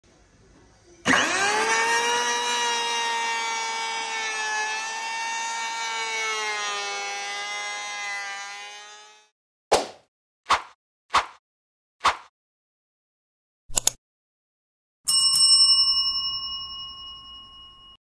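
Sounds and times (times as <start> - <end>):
electric hand planer whining: 1.1 - 9.3.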